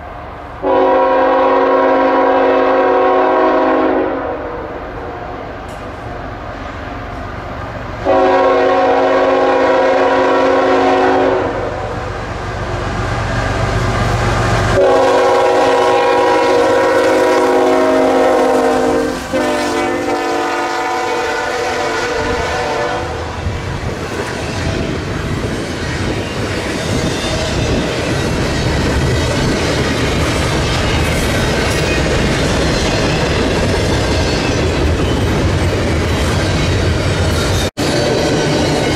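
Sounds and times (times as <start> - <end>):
train horn blasts: 0.6 - 5.2, 8.0 - 12.1, 14.8 - 23.4
locomotive engine rumbling: 4.6 - 38.9
train wheels clickety-clack: 23.4 - 38.9.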